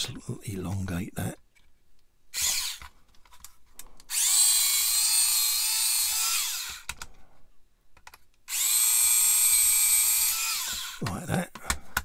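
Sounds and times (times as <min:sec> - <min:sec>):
rotary drill whining: 0:02.3 - 0:02.9, 0:04.1 - 0:07.0, 0:08.5 - 0:11.0.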